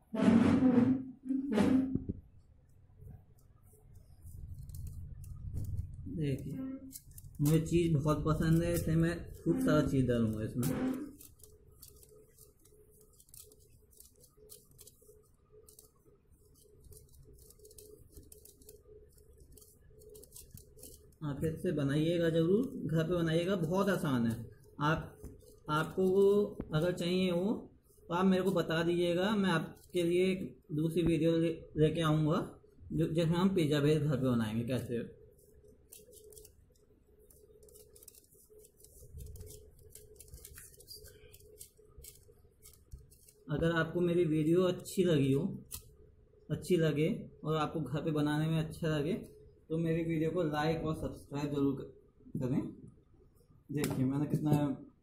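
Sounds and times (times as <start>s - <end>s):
cheese grating on metal grater: 3.8s - 27.0s, 35.5s - 44.1s.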